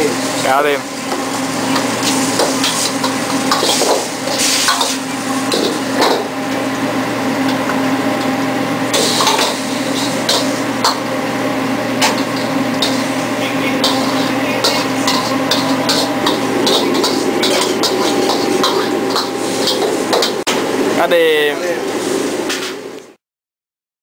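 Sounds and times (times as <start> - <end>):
sizzling: 0.0 - 23.1
kitchen hum: 0.0 - 23.2
metal ladle scraping wok: 0.2 - 6.4, 8.9 - 11.1, 11.9 - 20.5.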